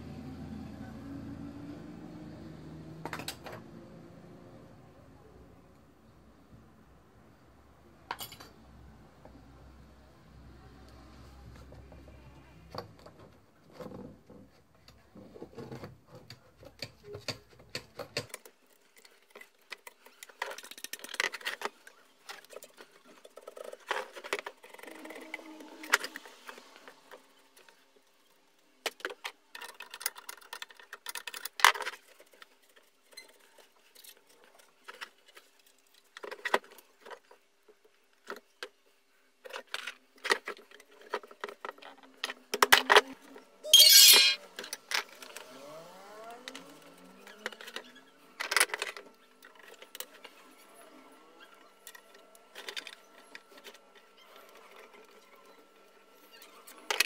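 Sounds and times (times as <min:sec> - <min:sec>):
plastic and metal parts clicking: 0:15.6 - 0:25.3.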